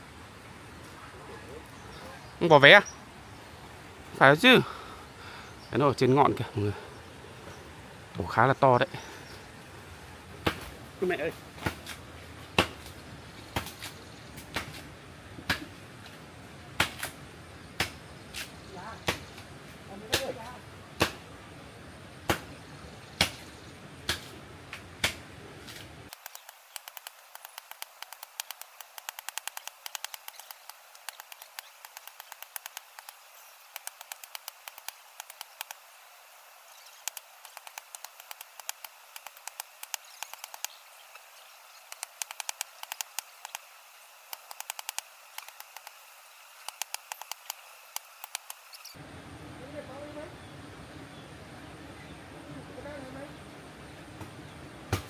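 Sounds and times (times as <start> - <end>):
fast faint ticks: 26.1 - 35.8, 37.0 - 41.2, 41.8 - 46.0, 46.6 - 48.8.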